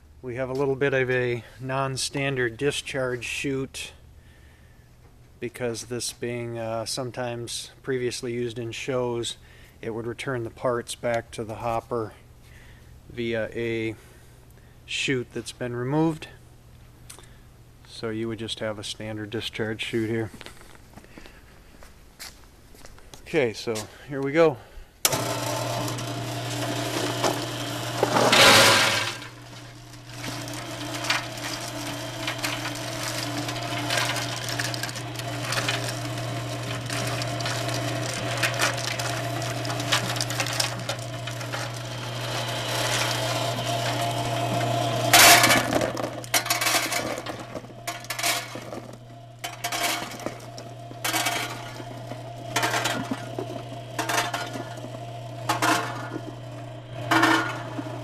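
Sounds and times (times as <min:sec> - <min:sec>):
conveyor humming: 0:23.4 - 0:58.0
loud rattling bursts: 0:25.2 - 0:58.0
metal parts clattering: 0:30.1 - 0:58.0.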